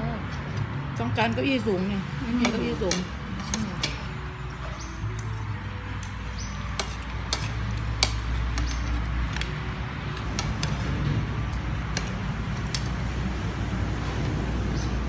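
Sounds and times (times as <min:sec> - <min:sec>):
cutlery clinking on plates: 0:02.4 - 0:09.5.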